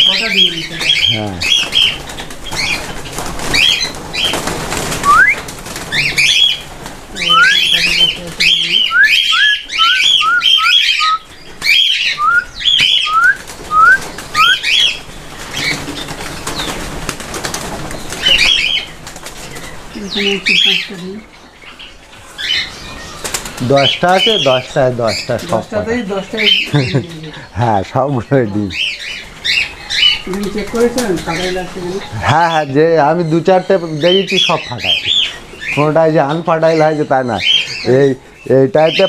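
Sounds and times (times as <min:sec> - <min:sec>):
cockatiels chirping: 0:00.0 - 0:16.9, 0:18.0 - 0:39.0
lower bird calls: 0:00.0 - 0:16.9
quick rising whistles: 0:05.0 - 0:05.4, 0:12.2 - 0:14.6.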